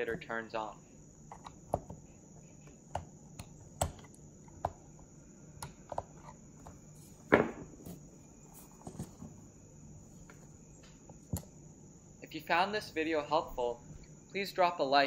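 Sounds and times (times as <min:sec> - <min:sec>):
faint high whine: 0:00.0 - 0:15.0.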